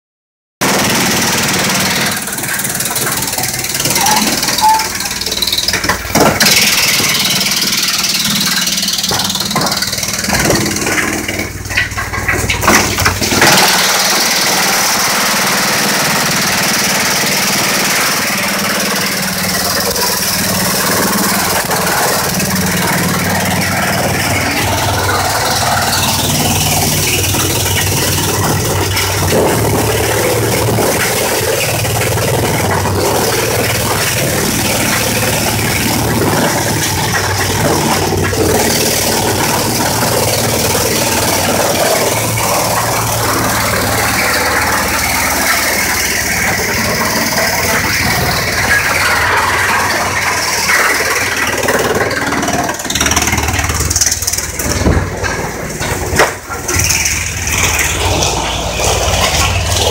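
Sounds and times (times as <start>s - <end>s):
wood chipper hum: 0.6s - 59.9s
wood cracking and crunching: 0.7s - 16.3s, 17.2s - 59.9s.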